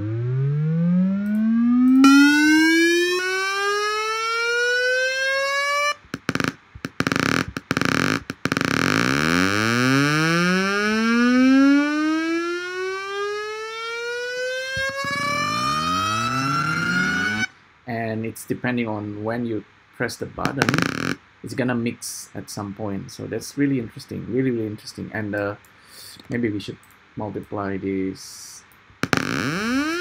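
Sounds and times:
synthesized tone gliding upward: 0:00.0 - 0:06.5, 0:08.2 - 0:17.5.

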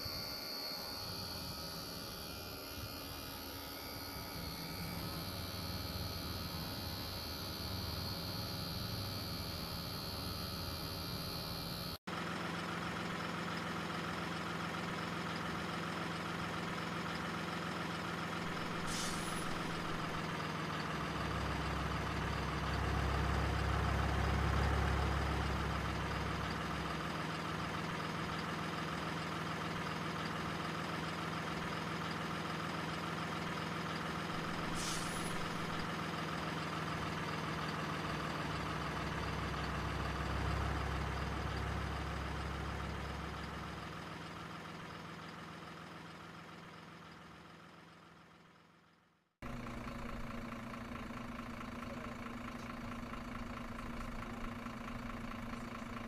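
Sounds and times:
toy truck engine sound: 0:00.0 - 0:48.0
short high hisses: 0:18.7 - 0:20.0, 0:34.4 - 0:35.8.

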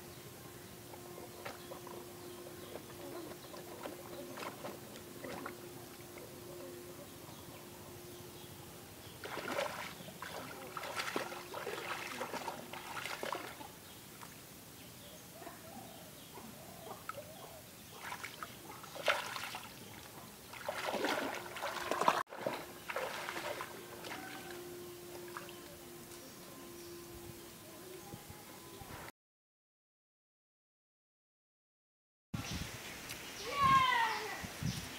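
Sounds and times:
person wading through water: 0:00.8 - 0:06.9, 0:09.2 - 0:14.4, 0:17.9 - 0:25.7
shallow water splashing: 0:01.0 - 0:06.5, 0:09.2 - 0:14.4, 0:17.9 - 0:25.6.

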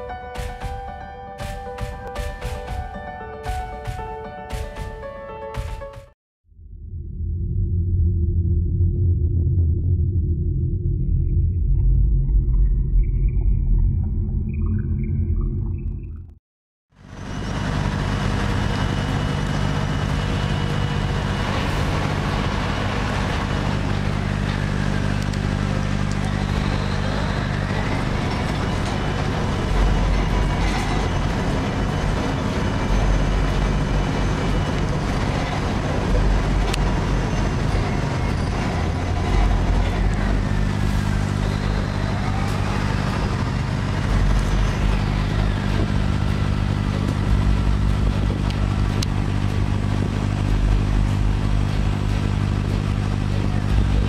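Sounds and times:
deep rumbling surges: 0:06.6 - 0:16.3, 0:17.4 - 0:54.0
boat engine running: 0:16.9 - 0:54.0.

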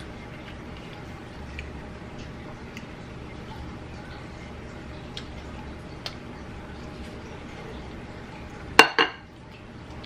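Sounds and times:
glass bowl clinking: 0:08.8 - 0:09.3.

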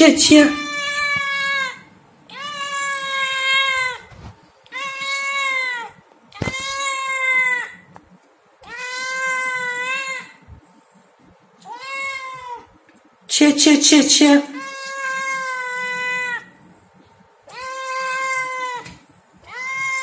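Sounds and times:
kitten meowing: 0:17.5 - 0:18.9.

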